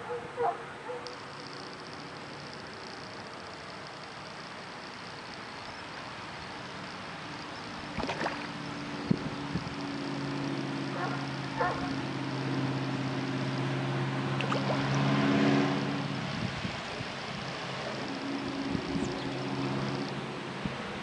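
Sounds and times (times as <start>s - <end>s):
engine droning: 0.0s - 21.0s
fish splashing at water surface: 7.9s - 8.6s, 14.4s - 15.1s.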